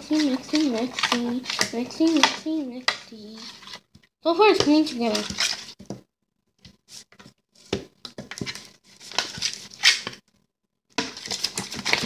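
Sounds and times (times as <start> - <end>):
spoon scraping glass bowl: 0.0 - 3.9, 5.0 - 5.8
sticky slime squishing: 0.0 - 5.8, 11.0 - 12.0.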